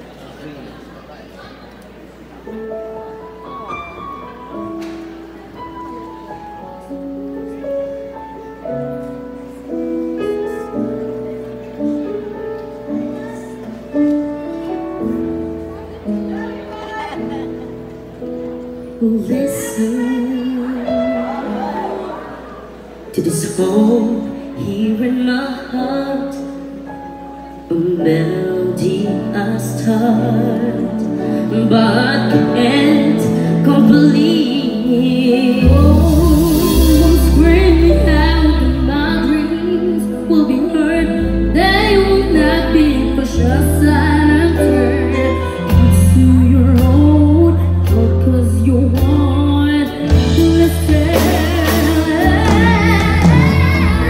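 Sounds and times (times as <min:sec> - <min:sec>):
slow piano chords: 0:00.0 - 0:54.0
live band playing: 0:25.8 - 0:54.0
boy singing into a microphone: 0:28.0 - 0:54.0.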